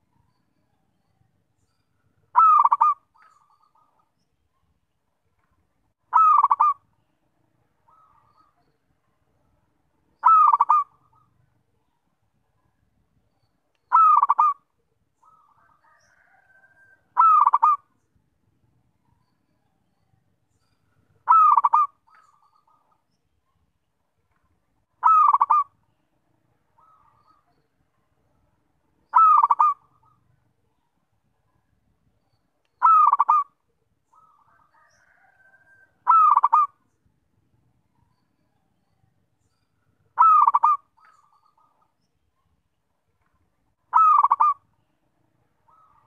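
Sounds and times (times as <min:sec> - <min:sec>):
faint bird call: 0:00.0 - 0:04.1, 0:06.1 - 0:08.9, 0:10.2 - 0:12.1, 0:13.4 - 0:18.0, 0:19.0 - 0:23.6, 0:25.0 - 0:27.8, 0:29.1 - 0:31.0, 0:32.2 - 0:37.0, 0:37.9 - 0:42.6, 0:43.9 - 0:46.0
dove cooing: 0:02.3 - 0:03.9, 0:06.1 - 0:06.8, 0:10.2 - 0:11.3, 0:13.9 - 0:14.6, 0:15.2 - 0:17.9, 0:21.2 - 0:22.8, 0:25.0 - 0:25.7, 0:26.8 - 0:27.4, 0:29.1 - 0:30.3, 0:32.8 - 0:36.8, 0:40.2 - 0:41.8, 0:43.9 - 0:44.6, 0:45.7 - 0:46.0.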